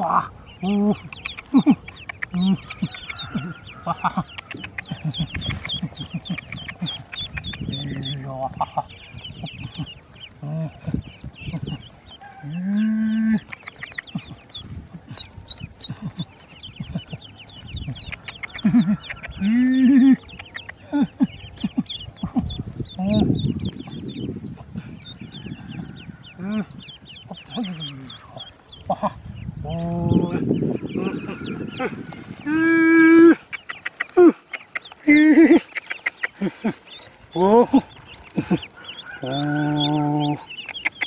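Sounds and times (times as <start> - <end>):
drawn-out duckling calls: 0.0 - 41.0
ducklings peeping: 0.0 - 41.0.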